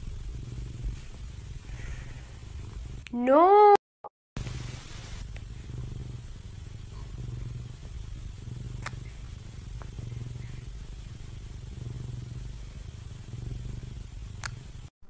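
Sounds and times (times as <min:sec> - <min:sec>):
cat purring: 0:00.0 - 0:03.1, 0:04.4 - 0:14.9
faint clicks: 0:08.8 - 0:10.2, 0:14.4 - 0:14.6.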